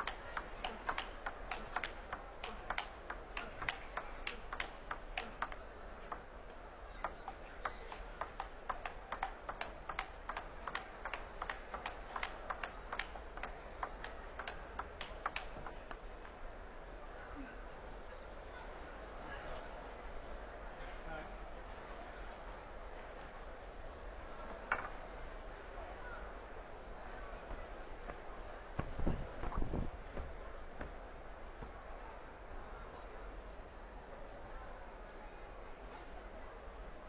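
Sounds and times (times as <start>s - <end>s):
table tennis ball clicking: 0.0s - 6.3s, 7.0s - 16.0s
faint crowd noise: 0.0s - 37.0s.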